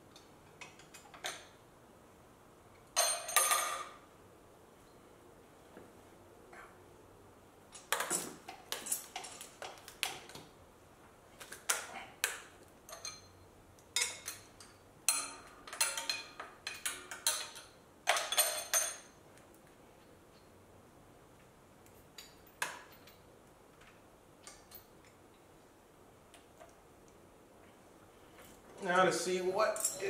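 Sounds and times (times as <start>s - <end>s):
tools clinking on engine metal: 3.0s - 4.0s, 12.8s - 19.2s, 22.1s - 23.3s, 29.6s - 30.0s.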